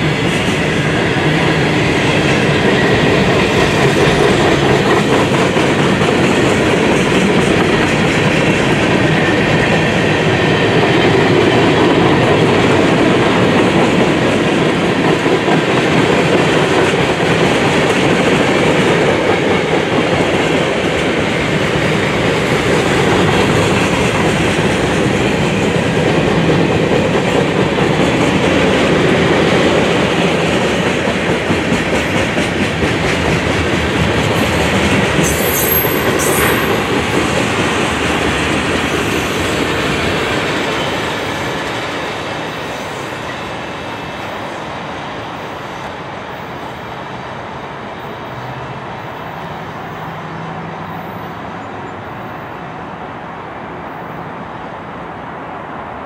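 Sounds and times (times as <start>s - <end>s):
train wheels clattering over rail joints: 0.0s - 43.6s
high wheel squeal: 35.3s - 36.8s.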